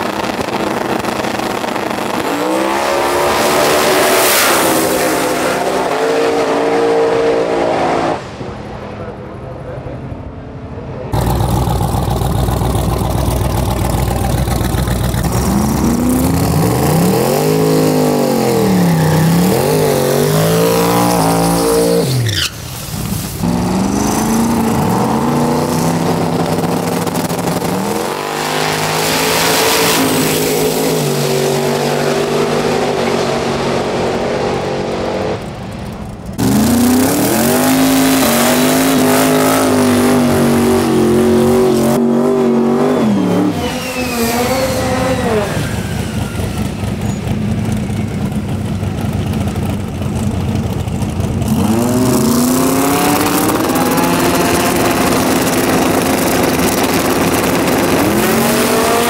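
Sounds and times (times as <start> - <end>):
engine at high revs during burnout: 0.0 - 8.4, 11.1 - 22.5, 23.4 - 35.4, 36.4 - 46.9, 51.4 - 59.0
car speeding away: 0.0 - 8.7, 23.4 - 35.4, 51.4 - 59.0
drag racing car engines revving: 0.0 - 59.0.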